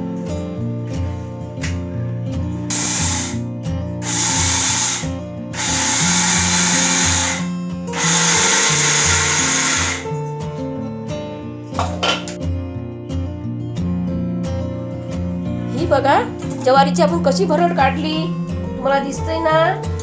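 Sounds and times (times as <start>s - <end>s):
guitar music: 0.0s - 20.0s
mixer grinder grinding grain: 2.7s - 3.4s, 4.0s - 10.1s.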